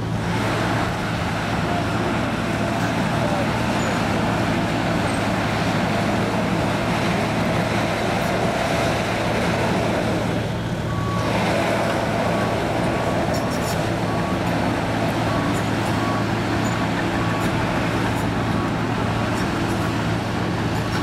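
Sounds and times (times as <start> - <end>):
dozer diesel engine running: 0.0 - 21.0.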